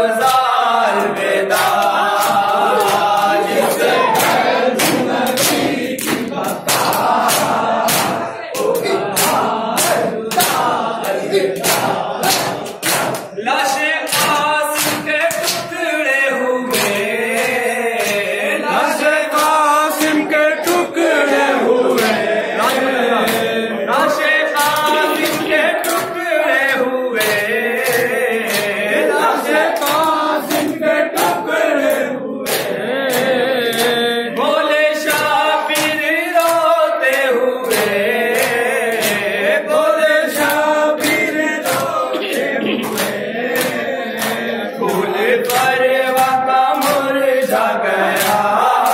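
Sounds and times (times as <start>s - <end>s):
men chanting over a microphone: 0.0s - 48.9s
chest beating slaps: 1.6s - 13.4s.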